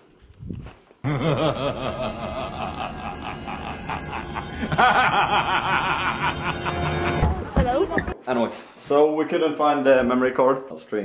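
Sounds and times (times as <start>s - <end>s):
man laughing: 1.0s - 7.4s.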